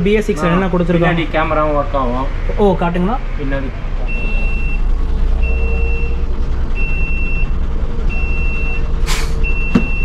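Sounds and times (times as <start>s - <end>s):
bus engine idling: 0.0s - 10.0s
reversing warning beeps: 4.0s - 10.0s
short air hiss: 9.0s - 9.4s.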